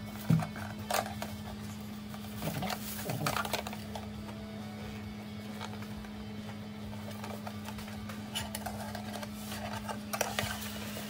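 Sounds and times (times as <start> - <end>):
plastic bag rustling: 0.0 - 4.3
steady low hum: 0.0 - 11.0.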